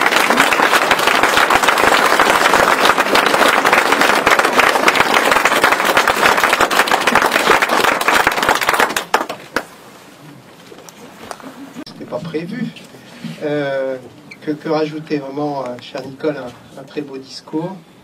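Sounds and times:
audience applauding: 0.0 - 9.7.

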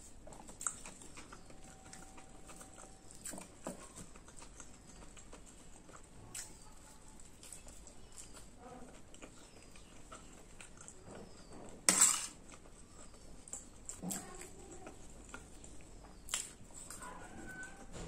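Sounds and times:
chewing and mouth noises: 0.0 - 18.0
spoon scraping a steel plate: 11.9 - 12.4.

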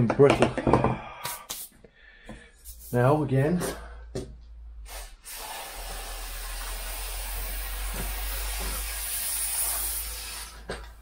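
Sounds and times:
aerosol spray can hissing: 1.3 - 1.8, 2.6 - 3.0, 4.9 - 10.7.

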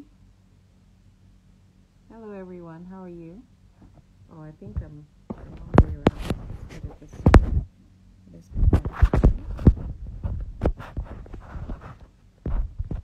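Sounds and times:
phone handling thumps and clicks: 4.6 - 7.6.

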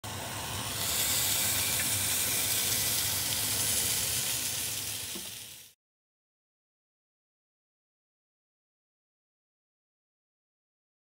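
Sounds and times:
food sizzling in a pan: 0.1 - 5.8.

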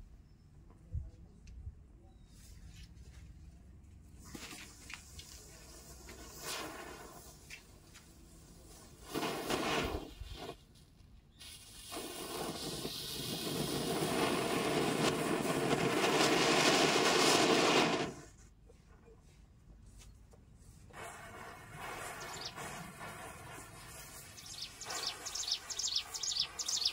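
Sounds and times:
matchsticks igniting: 4.2 - 10.6, 11.4 - 18.4
firework fountain hissing: 4.3 - 10.7, 11.3 - 18.4, 20.9 - 26.9.

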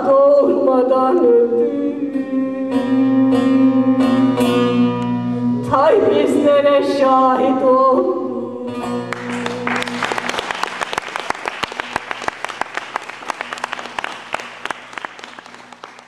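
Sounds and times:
audience applauding: 9.1 - 16.0.

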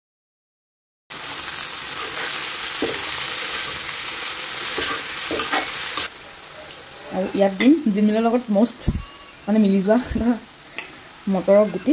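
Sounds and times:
greens sizzling in hot oil: 1.1 - 11.9
metal spoon scraping pan: 4.6 - 6.1.

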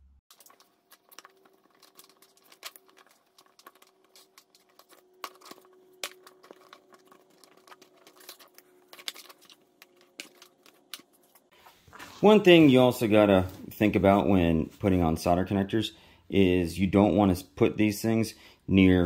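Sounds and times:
wires rustling and clicking: 0.3 - 13.9.

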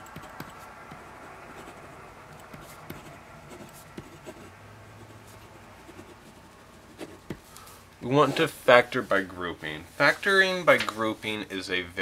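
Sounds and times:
pen scratching on paper: 2.4 - 7.5, 8.2 - 8.6.

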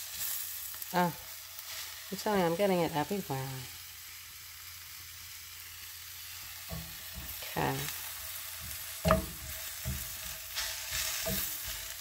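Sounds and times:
vegetables sizzling in a skillet: 0.0 - 12.0
sharp knock with ring: 9.1 - 9.4
thump: 9.1 - 9.4.

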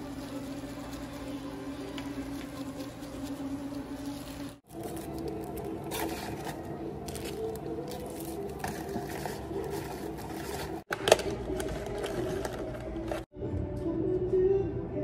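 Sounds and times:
paper rustling and crinkling: 2.2 - 13.3.

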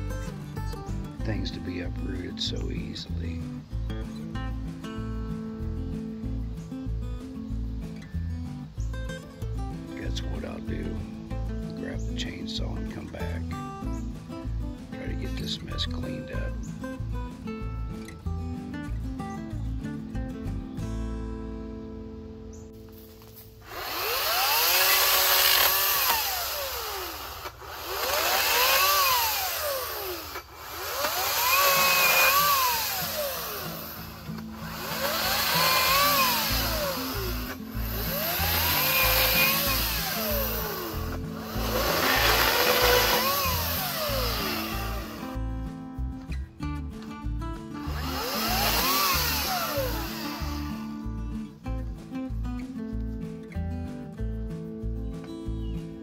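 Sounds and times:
chainsaw cutting branches: 10.0 - 18.1, 22.8 - 46.3, 47.6 - 51.2.

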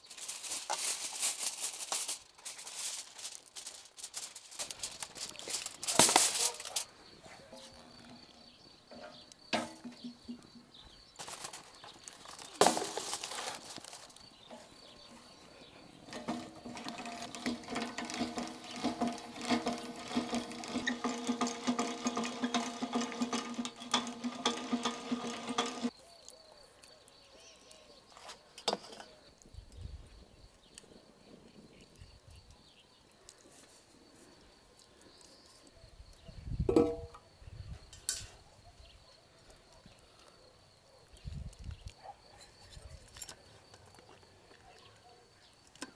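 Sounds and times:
rotisserie chain drive whirring: 16.1 - 25.9.

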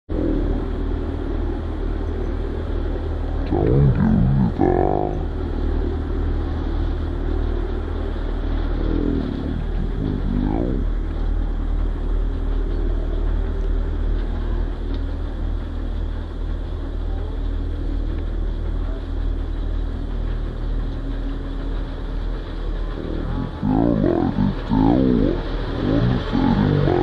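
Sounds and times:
engine idling: 0.1 - 27.0
voices calling out: 3.4 - 5.3, 8.7 - 11.0, 22.9 - 27.0.

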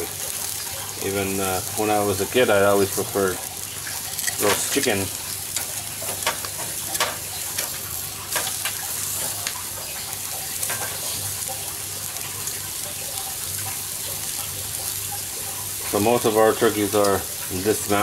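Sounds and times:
meat sizzling on a grill: 0.0 - 18.0
metal tongs clicking: 4.2 - 4.7.

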